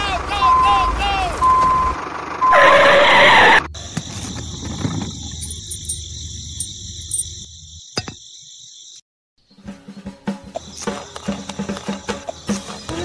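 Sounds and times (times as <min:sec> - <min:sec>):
high-pitched insect chirring: 0:05.1 - 0:09.0.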